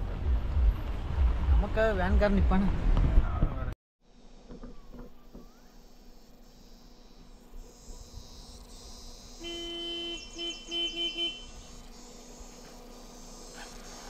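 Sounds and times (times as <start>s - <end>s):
insects buzzing: 4.0s - 14.0s
vehicle horn honking: 9.4s - 11.6s.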